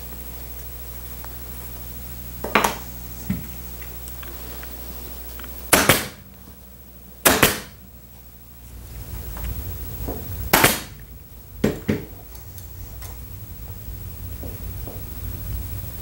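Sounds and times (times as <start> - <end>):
pneumatic staple gun firing: 5.7 - 6.2, 7.2 - 7.8, 10.5 - 11.0.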